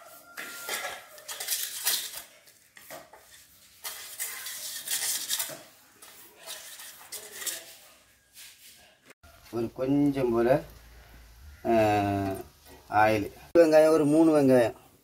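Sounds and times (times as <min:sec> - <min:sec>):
fingers scraping a steel plate: 0:03.2 - 0:05.7, 0:06.4 - 0:07.8.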